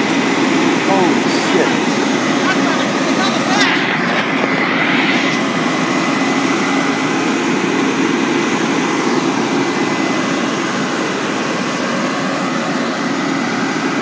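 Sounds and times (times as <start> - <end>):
truck engine running: 0.0 - 7.8.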